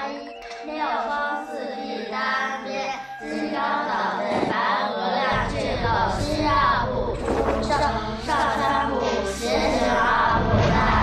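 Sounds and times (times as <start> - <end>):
background music: 0.0 - 11.0
high singing voice: 0.0 - 11.0
deep low layer: 5.3 - 11.0.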